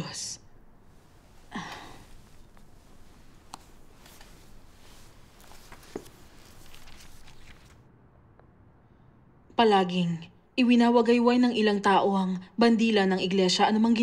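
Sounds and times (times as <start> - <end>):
faint rustling: 0.4 - 7.9
soft clicks: 3.4 - 4.3.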